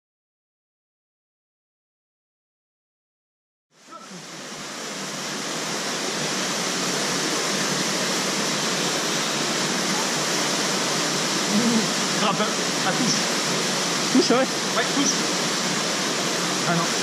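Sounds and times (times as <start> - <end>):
small waterfall pouring into pool: 3.8 - 17.0.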